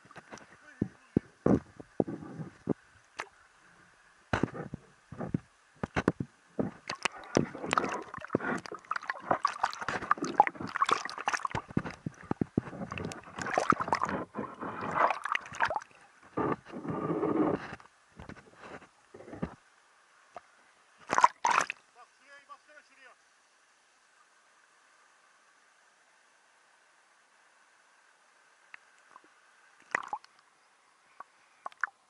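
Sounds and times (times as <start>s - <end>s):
water sloshing and splashing: 5.9s - 16.7s, 21.0s - 21.8s, 29.1s - 30.3s.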